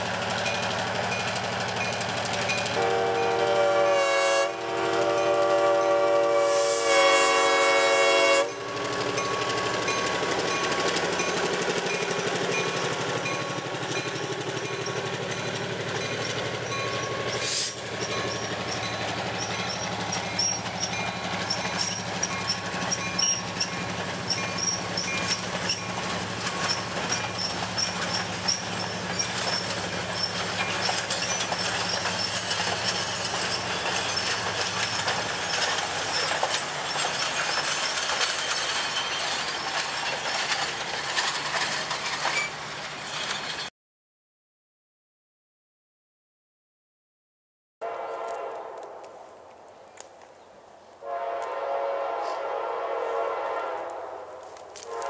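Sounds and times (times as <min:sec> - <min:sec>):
diesel locomotive drone: 0:00.0 - 0:43.7, 0:47.8 - 0:55.0
train wheels clicking over rail joints: 0:08.5 - 0:43.7.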